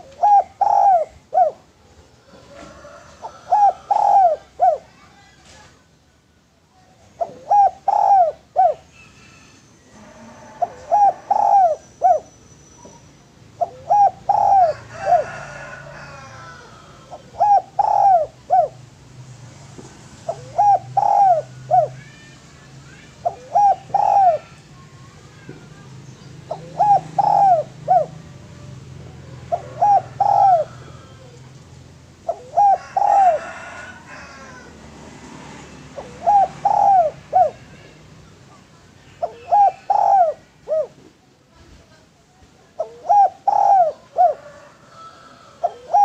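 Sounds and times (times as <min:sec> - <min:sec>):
dove cooing: 0:00.0 - 0:05.0, 0:07.2 - 0:12.3, 0:13.6 - 0:18.9, 0:20.2 - 0:22.2, 0:23.1 - 0:34.8, 0:35.8 - 0:38.0, 0:39.1 - 0:41.1, 0:42.8 - 0:46.0
small birds chirping: 0:19.8 - 0:32.4.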